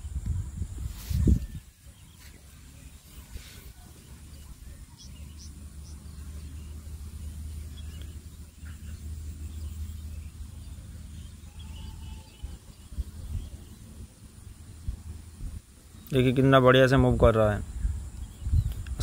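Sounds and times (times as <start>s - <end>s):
faint bird chirps: 0.0s - 14.6s
steady low hum: 0.0s - 19.0s.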